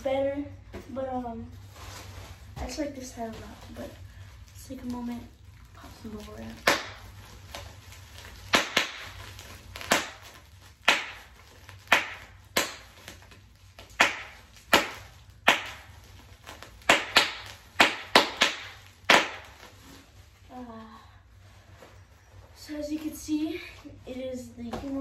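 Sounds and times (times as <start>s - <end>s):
bubble wrap popping: 1.6s - 20.6s.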